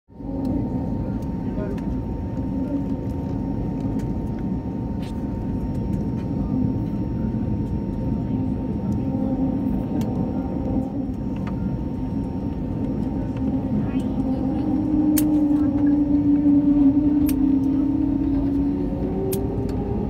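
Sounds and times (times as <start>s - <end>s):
aircraft engines rumbling: 0.1s - 20.0s
steady cabin hum: 0.2s - 20.0s.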